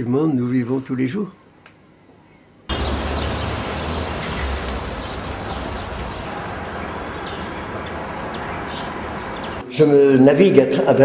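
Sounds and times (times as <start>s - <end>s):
low outdoor rumble: 2.7s - 9.6s.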